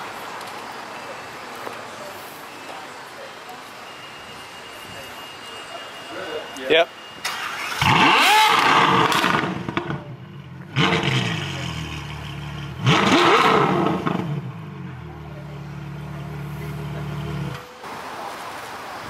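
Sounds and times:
car engine revving: 0:07.3 - 0:17.6
car engine idling: 0:07.4 - 0:17.7.

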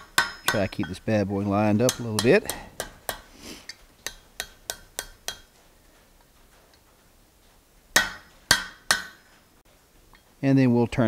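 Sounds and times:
hammer striking steel on anvil: 0:00.0 - 0:03.3, 0:04.0 - 0:05.6, 0:07.9 - 0:09.3.

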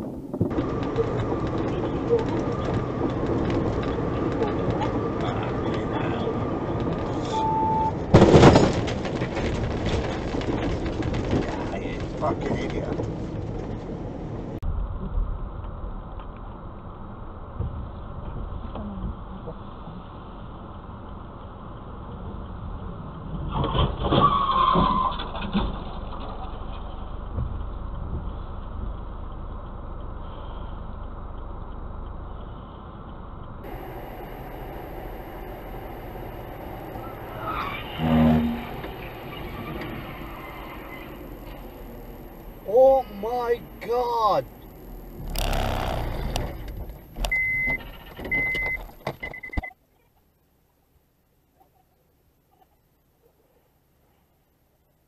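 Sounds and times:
road and engine noise: 0:00.0 - 0:51.5
car crash impact bangs: 0:08.1 - 0:09.6
falling squeal: 0:24.2 - 0:25.3, 0:33.7 - 0:42.7
sharp clicks: 0:44.6 - 0:47.5.

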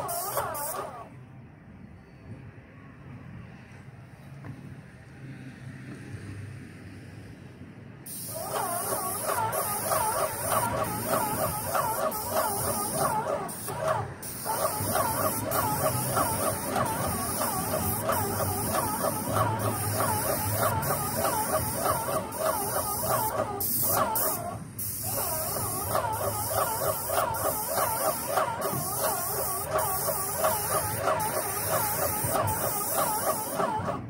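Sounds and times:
spray gun hissing: 0:00.0 - 0:01.0, 0:08.1 - 0:34.0.

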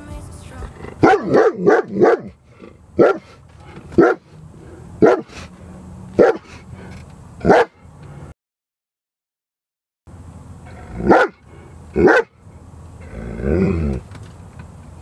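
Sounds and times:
dog barking: 0:01.0 - 0:02.4, 0:03.0 - 0:03.4, 0:04.0 - 0:04.3, 0:05.0 - 0:05.4, 0:06.2 - 0:06.5, 0:07.4 - 0:07.8, 0:11.0 - 0:11.4, 0:12.0 - 0:12.4.

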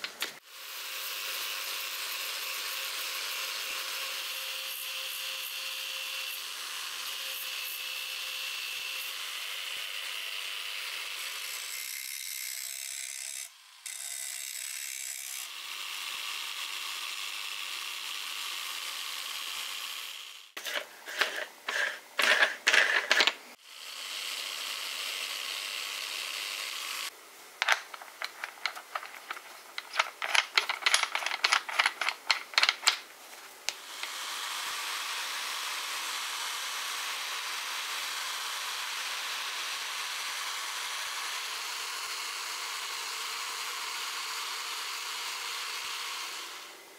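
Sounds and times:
angle grinder grinding steel: 0:13.9 - 0:33.0
rapid metallic clicks and rattles: 0:27.6 - 0:33.0.

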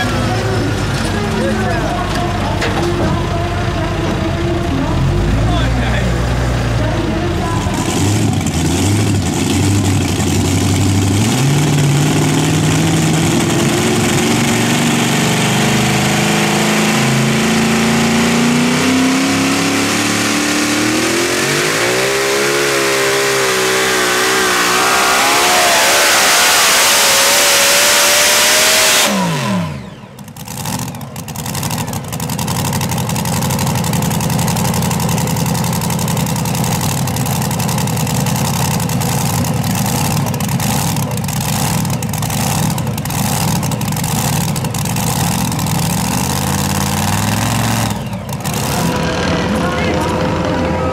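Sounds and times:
vehicle engine at full throttle: 0:00.0 - 0:50.9.

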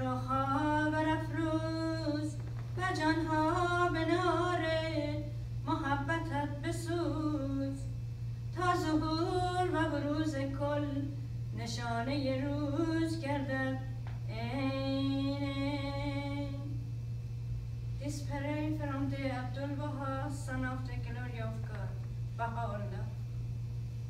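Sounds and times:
woman chanting a prayer: 0:00.0 - 0:07.9, 0:18.0 - 0:23.2.

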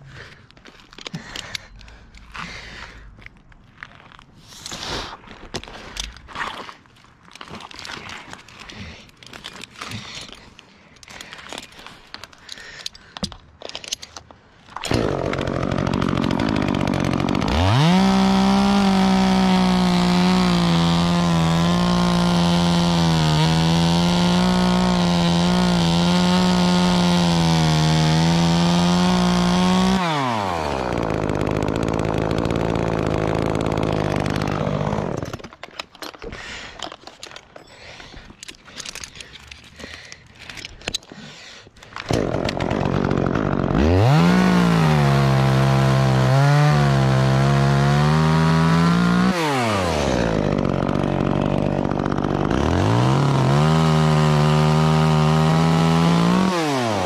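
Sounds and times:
chainsaw revving and cutting wood: 0:14.8 - 0:35.5, 0:41.2 - 0:57.0.

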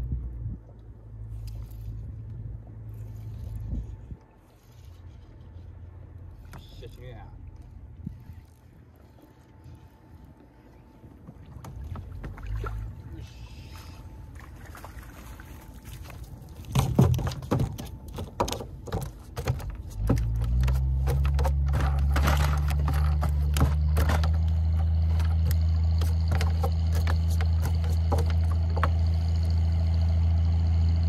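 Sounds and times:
boat engine idling: 0:00.0 - 0:31.0
knocks and clatter: 0:16.6 - 0:29.8.

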